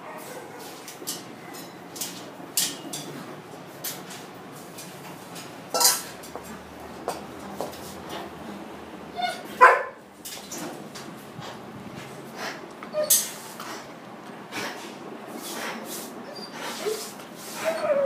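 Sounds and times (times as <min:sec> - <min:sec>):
dog barking: 0:09.6 - 0:10.0.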